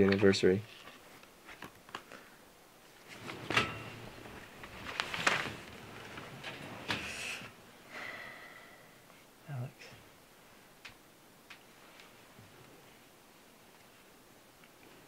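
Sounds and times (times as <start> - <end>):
rustling and handling: 0.6 - 2.3, 2.9 - 7.2.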